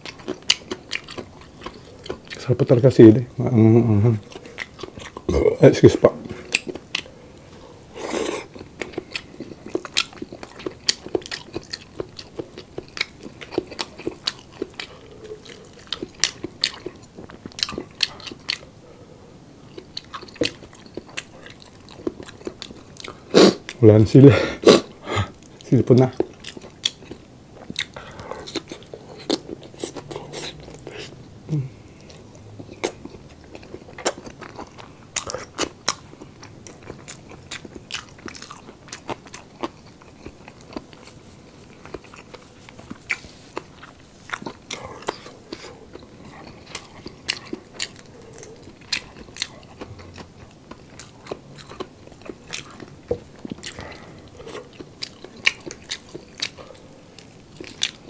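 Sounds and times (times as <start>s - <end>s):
person biting and chewing: 32.6s - 58.0s.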